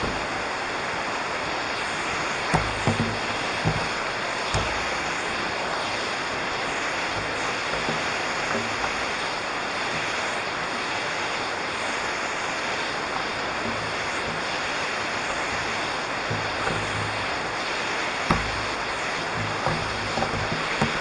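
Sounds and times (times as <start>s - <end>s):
waterfall rushing: 0.0s - 21.0s
single thump: 2.5s - 5.1s, 18.3s - 21.0s.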